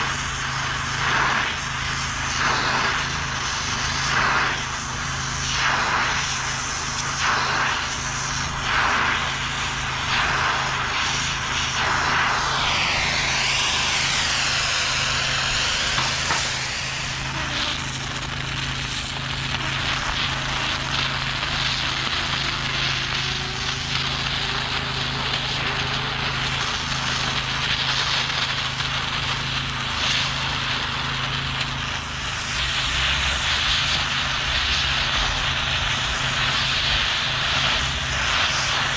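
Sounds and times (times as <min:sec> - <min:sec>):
plasma torch hissing: 0:00.0 - 0:38.9
low hum: 0:09.8 - 0:17.3.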